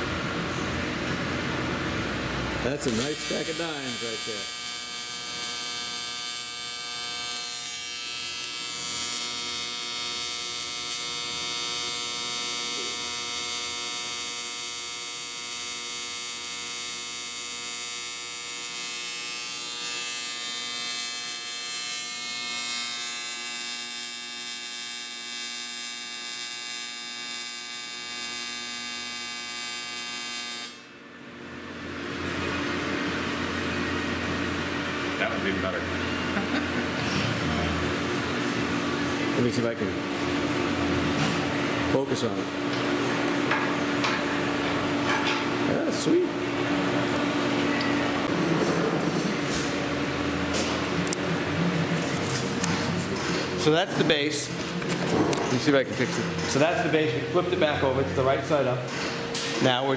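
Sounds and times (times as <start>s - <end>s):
welding arc buzzing: 0.0s - 59.9s.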